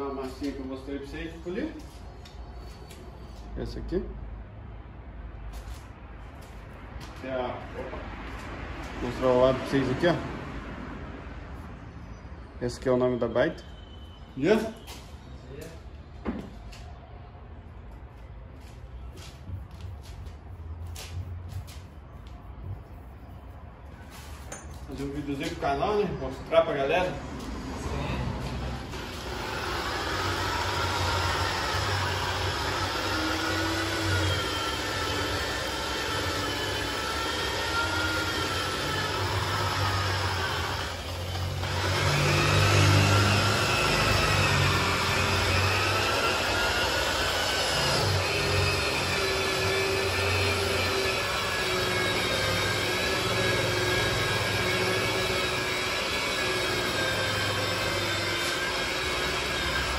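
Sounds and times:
rotary polisher motor whine: 28.7 - 59.9.

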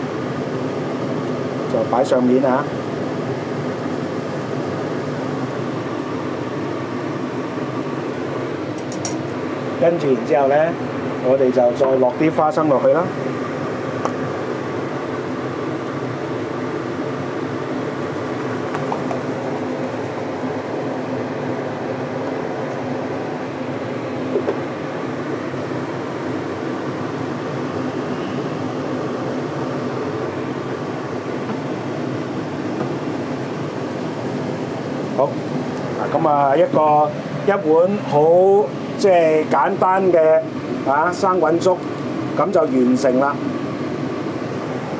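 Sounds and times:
fan whirring hum: 0.0 - 44.9.

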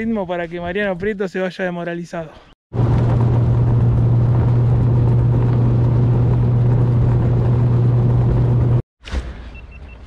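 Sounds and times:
motorboat engine running: 2.7 - 8.8.

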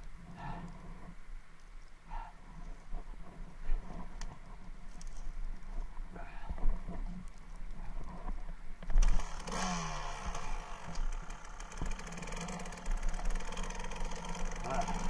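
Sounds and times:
muffled motorcycle engine revving: 8.0 - 15.0.

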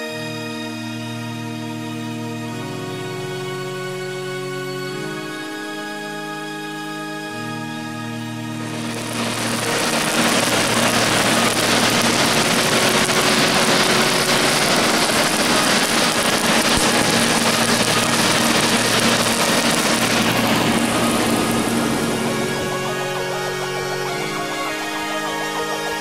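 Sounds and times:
blower motor hum: 8.6 - 26.0
air rushing through forge fire: 8.7 - 23.3.

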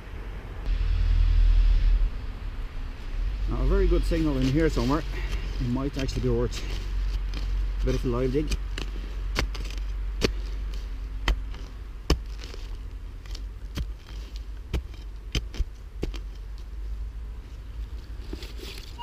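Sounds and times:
dry leaves crackling: 2.9 - 15.0
spade chopping and scraping soil: 4.3 - 16.5.

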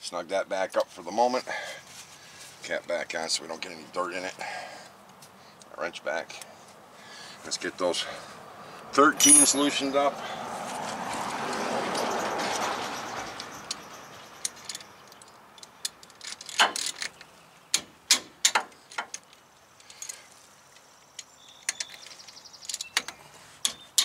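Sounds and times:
sharp metallic clicks and taps: 13.3 - 22.1.

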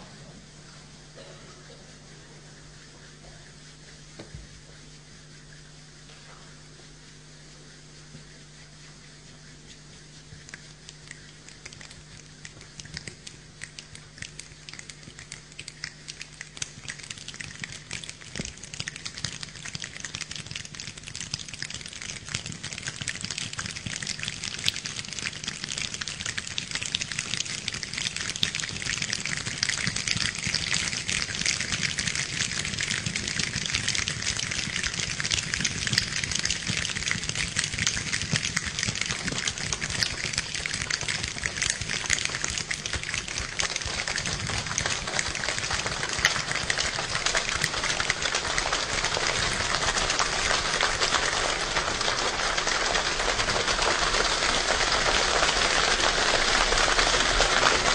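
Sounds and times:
fingers snapping: 9.7 - 51.4
hands clapping: 10.4 - 57.9.

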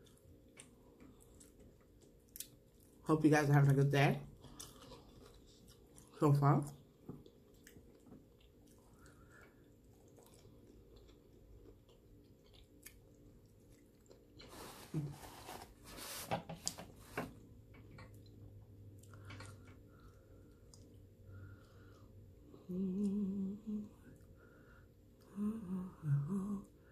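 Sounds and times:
person chewing food: 0.0 - 3.0, 4.3 - 15.0, 16.7 - 23.2.

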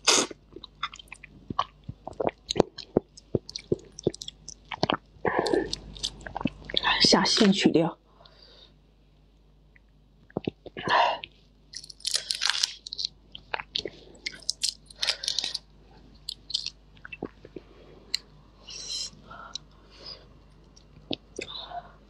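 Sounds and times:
chewing: 0.5 - 6.8, 11.8 - 15.6, 16.2 - 18.2.

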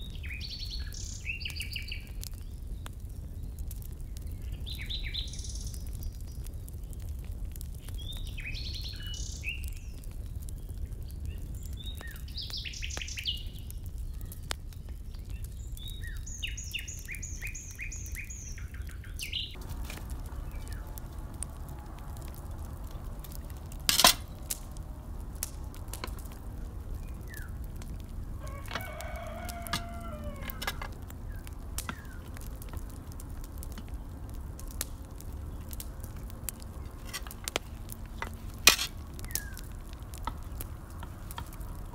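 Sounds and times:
chicken calling: 28.4 - 31.0.

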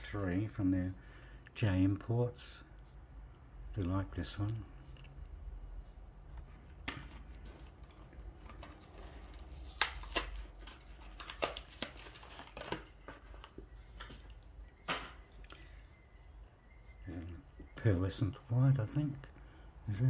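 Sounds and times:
crinkling plastic and card: 6.9 - 15.6
packaging rustle: 7.0 - 14.5.

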